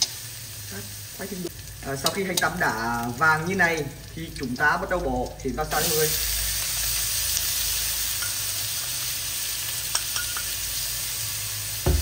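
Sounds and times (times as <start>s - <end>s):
clams sizzling in hot oil: 0.0s - 12.0s.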